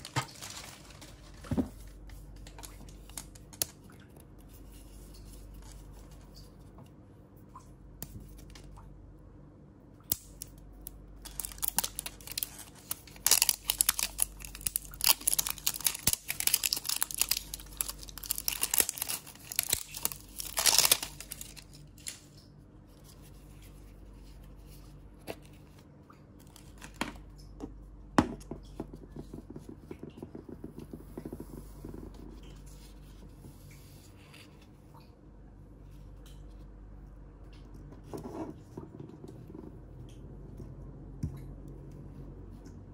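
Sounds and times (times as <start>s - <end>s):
plastic wrapping crinkling and tearing: 0.0s - 3.9s, 11.2s - 22.5s.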